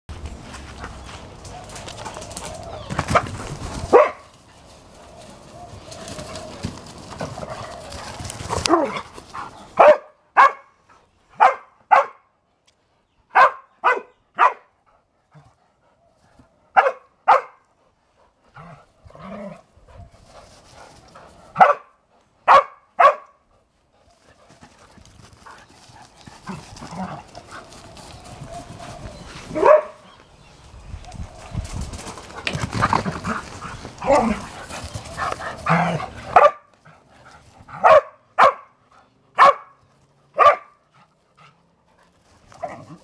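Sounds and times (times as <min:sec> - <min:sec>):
dog barking in play: 0:03.9 - 0:04.3, 0:09.8 - 0:10.7, 0:11.4 - 0:12.3, 0:13.3 - 0:14.7, 0:16.7 - 0:17.6, 0:21.6 - 0:23.4, 0:29.5 - 0:30.0, 0:35.6 - 0:36.7, 0:37.8 - 0:38.8, 0:39.4 - 0:39.8, 0:40.4 - 0:40.8.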